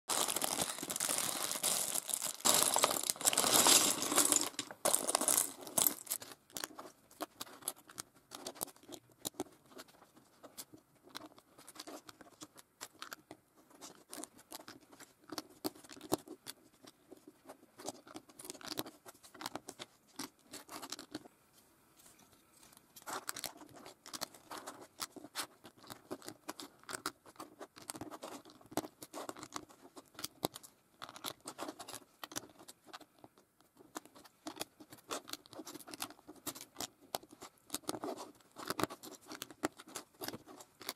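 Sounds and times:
plastic bag crinkling: 0:00.1 - 0:06.4
plastic bricks clicking: 0:00.1 - 0:06.7.

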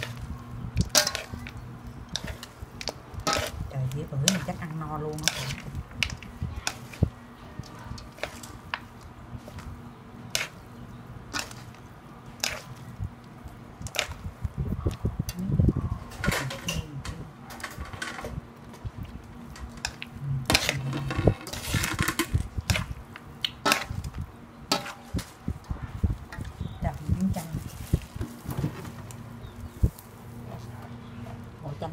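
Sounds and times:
steady low hum: 0:00.0 - 0:31.9.

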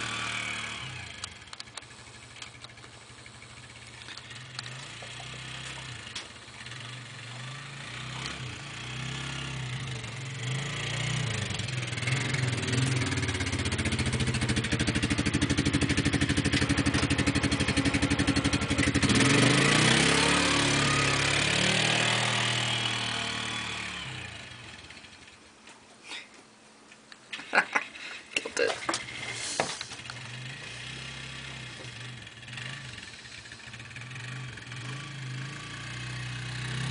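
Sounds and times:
quad bike engine under load: 0:00.0 - 0:25.5, 0:27.4 - 0:36.9.

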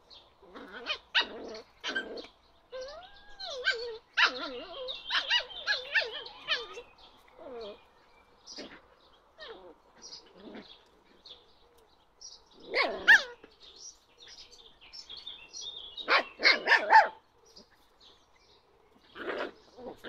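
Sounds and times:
puppies barking: 0:00.4 - 0:07.8, 0:12.6 - 0:13.6, 0:16.0 - 0:17.2.

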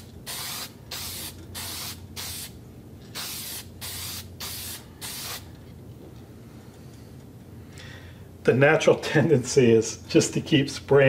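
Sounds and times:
aerosol can spraying in bursts: 0:00.0 - 0:02.6, 0:03.2 - 0:05.5.

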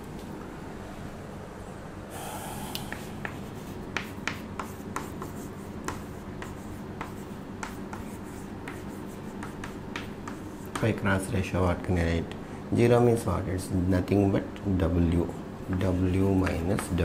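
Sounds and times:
chalk tapping and scraping: 0:02.8 - 0:11.2, 0:15.7 - 0:17.0.

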